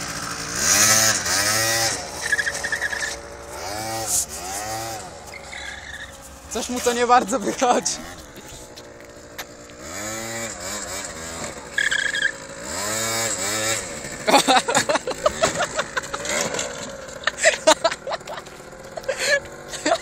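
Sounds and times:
scooter clattering on pavement: 0:00.0 - 0:20.0
scooter engine revving: 0:00.0 - 0:20.0
high squeal: 0:02.2 - 0:03.3, 0:05.3 - 0:06.2, 0:11.7 - 0:12.4.

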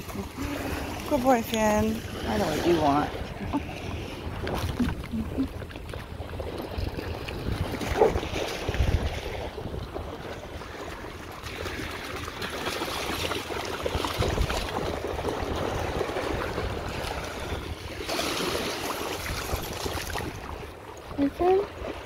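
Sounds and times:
dogs splashing through water: 0:00.0 - 0:22.0
small waves breaking: 0:00.0 - 0:22.0
water lapping at shoreline: 0:00.0 - 0:22.0
wind rumble on microphone: 0:00.0 - 0:22.0.

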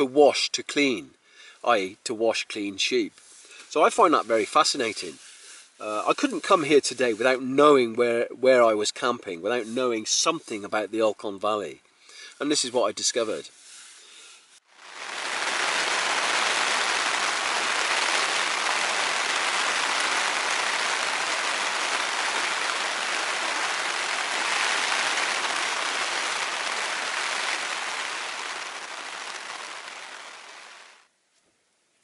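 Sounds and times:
rain pattering on a tent: 0:14.6 - 0:31.1.

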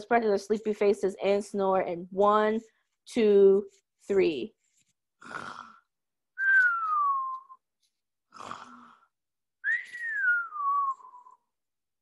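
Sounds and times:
woman pretend snoring: 0:05.2 - 0:05.9, 0:08.3 - 0:09.1.

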